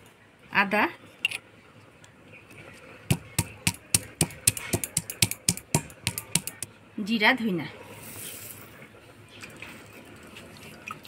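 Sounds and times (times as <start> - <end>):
stone pestle pounding on stone: 3.1 - 6.7.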